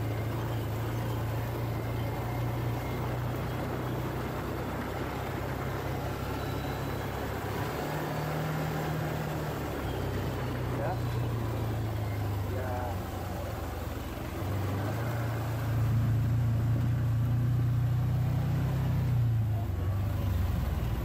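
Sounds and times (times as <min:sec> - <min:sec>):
gravel rushing: 0:00.0 - 0:21.0
quad bike engine running: 0:00.0 - 0:21.0.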